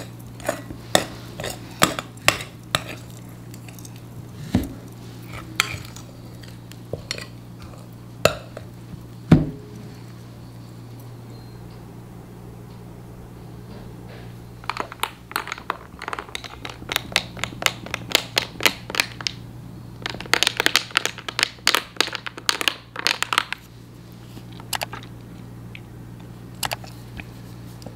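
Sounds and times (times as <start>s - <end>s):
low hum: 0.0s - 18.0s.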